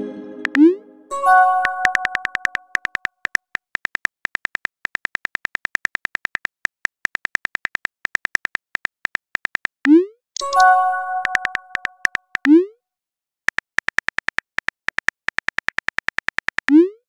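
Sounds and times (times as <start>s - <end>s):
chime tones: 0.0s - 2.4s, 10.4s - 11.8s
phone keyboard typing clicks: 1.6s - 12.6s, 13.5s - 16.8s.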